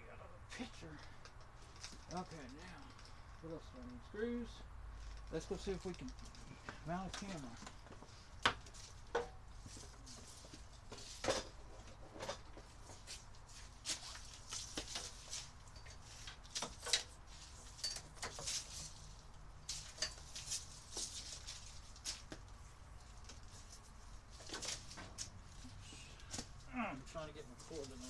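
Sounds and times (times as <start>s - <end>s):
light clicks taps and rustles: 5.0s - 25.4s.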